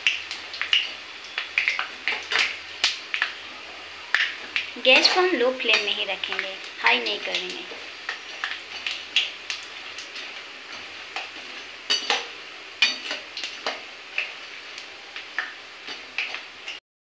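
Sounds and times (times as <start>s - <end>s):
oil sizzling: 0.0s - 16.8s
metal skimmer clinking on a pan: 11.9s - 13.2s.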